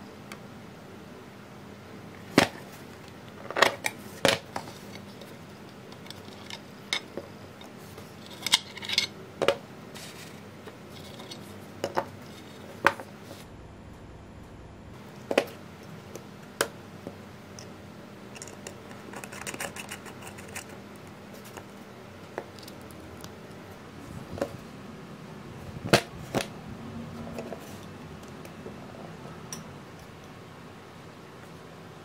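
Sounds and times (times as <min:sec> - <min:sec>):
small parts clattering: 0:18.3 - 0:20.8.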